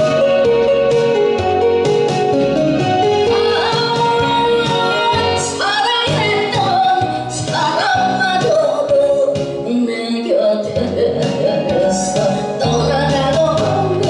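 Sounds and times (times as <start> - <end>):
instrumental backing music: 0.0 - 14.0
woman singing with vibrato: 3.2 - 14.0.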